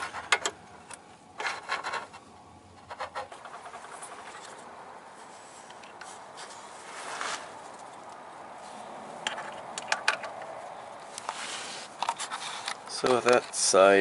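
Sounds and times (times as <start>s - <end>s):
hand and sleeve rustling: 3.1s - 9.7s, 10.4s - 13.6s.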